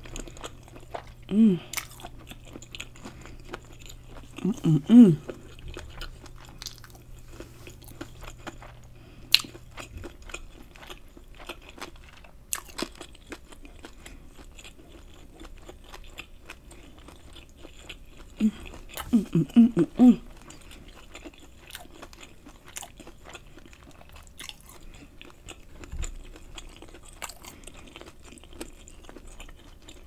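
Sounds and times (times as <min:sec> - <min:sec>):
crunchy chewing: 0:00.0 - 0:30.0
person humming mm: 0:01.3 - 0:01.8, 0:04.4 - 0:05.4, 0:18.4 - 0:20.3.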